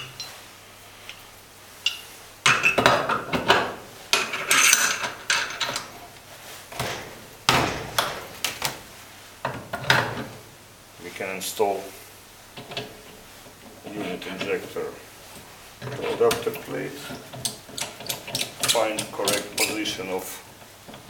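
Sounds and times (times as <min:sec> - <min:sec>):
metal parts clinking and knocking: 0:04.1 - 0:05.9.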